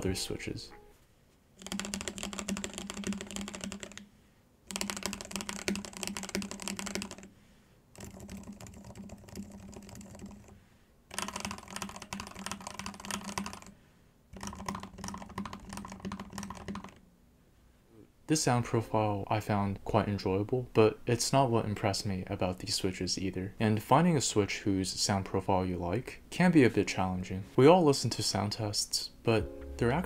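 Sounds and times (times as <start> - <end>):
fast typing on mechanical keyboard: 1.6 - 4.1, 4.7 - 7.3, 7.9 - 13.8, 14.4 - 17.0.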